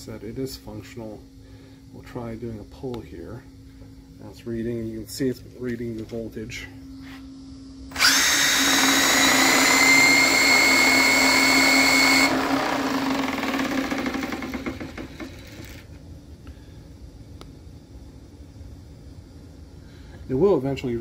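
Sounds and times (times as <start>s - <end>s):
electric motor high whine: 7.9s - 15.9s.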